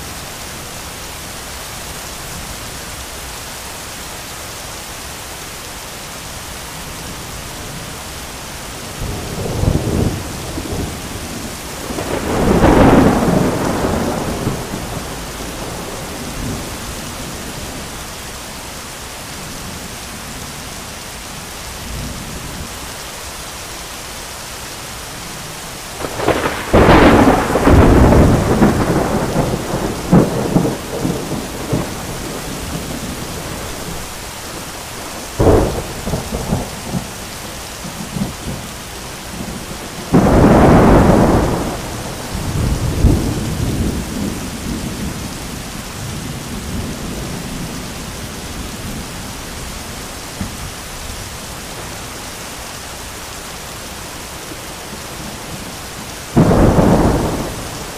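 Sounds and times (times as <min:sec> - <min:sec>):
heavy rain pouring: 0:00.0 - 0:57.9
thunder cracks and rumbling: 0:09.0 - 0:17.8, 0:26.0 - 0:34.1, 0:35.2 - 0:37.3, 0:39.3 - 0:47.8, 0:56.3 - 0:57.9.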